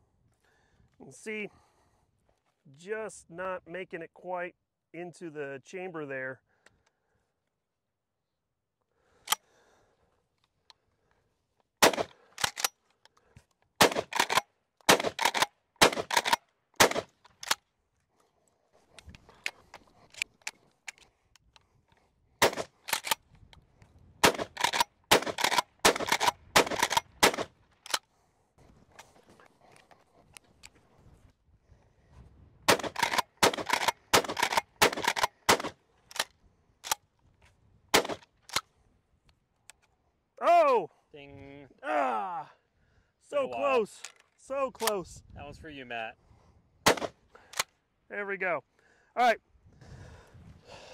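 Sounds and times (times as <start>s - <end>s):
shotgun shots: 11.8s - 12.2s, 13.8s - 17.1s, 22.4s - 23.1s, 24.2s - 27.5s, 32.7s - 35.8s, 37.9s - 38.2s, 46.8s - 47.2s
shells being loaded clicks: 11.9s - 16.4s, 17.2s - 17.6s, 18.9s - 21.7s, 22.5s - 23.4s, 24.3s - 28.0s, 32.7s - 37.1s, 43.9s - 45.0s.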